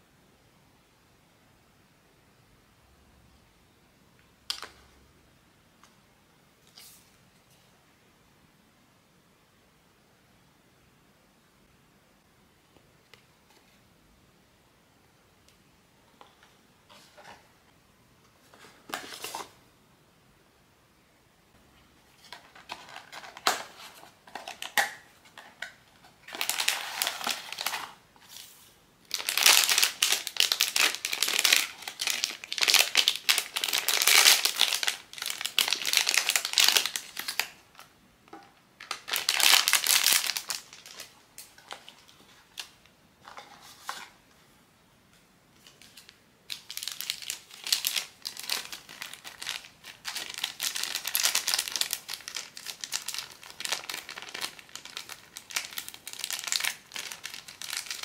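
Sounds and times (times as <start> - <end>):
packaging crinkling: 22.3 - 28.0, 29.1 - 37.8, 38.8 - 42.7, 45.6 - 58.0.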